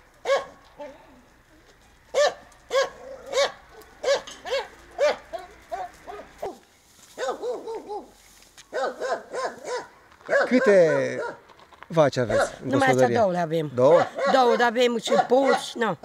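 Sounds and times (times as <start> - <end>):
dog barking: 0.2 - 0.9, 2.1 - 6.6, 7.2 - 8.1, 8.7 - 11.4, 12.3 - 12.6, 13.9 - 15.8.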